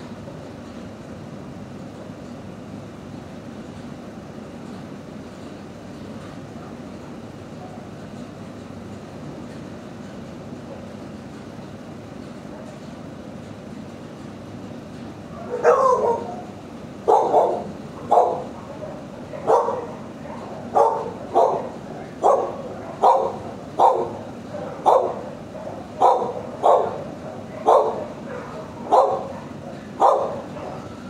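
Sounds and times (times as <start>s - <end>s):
dog barking: 15.4s - 16.4s, 17.1s - 31.0s.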